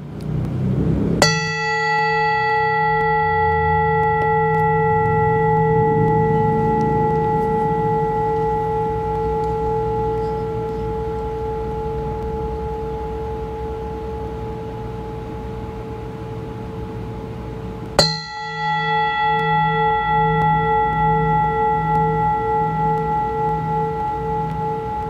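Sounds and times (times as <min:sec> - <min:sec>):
metal singing bowl ringing: 0:01.2 - 0:25.0
singing bowl struck: 0:01.2 - 0:25.0.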